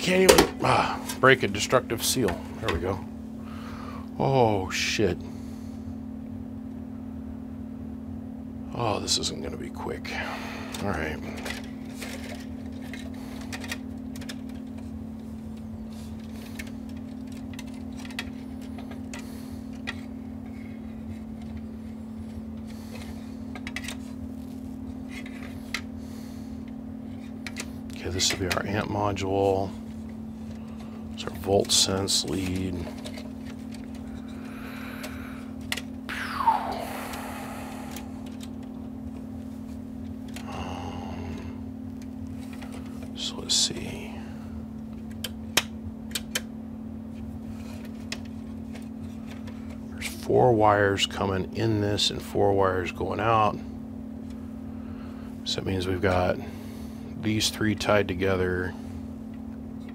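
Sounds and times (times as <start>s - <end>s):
steady low hum: 0.0s - 59.9s
wires being handled: 10.7s - 40.7s, 41.8s - 43.9s, 44.7s - 50.3s
wires rustling and ticking: 10.8s - 26.0s.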